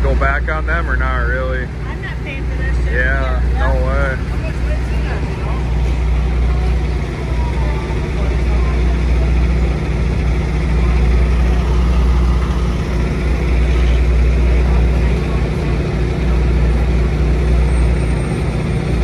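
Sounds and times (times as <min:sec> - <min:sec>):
diesel engine droning: 0:00.0 - 0:19.0.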